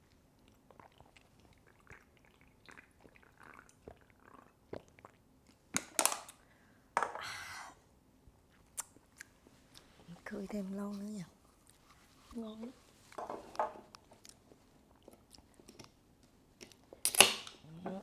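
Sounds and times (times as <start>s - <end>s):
close-up chewing: 0.0s - 5.6s, 14.0s - 17.0s
wet mouth clicks: 8.7s - 9.3s.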